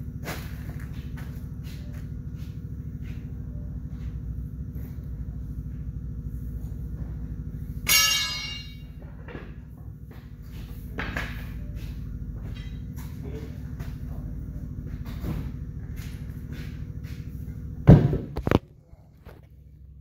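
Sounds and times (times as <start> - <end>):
low pulsing machine hum: 0.0 - 20.0
loud metallic clang: 7.8 - 9.0.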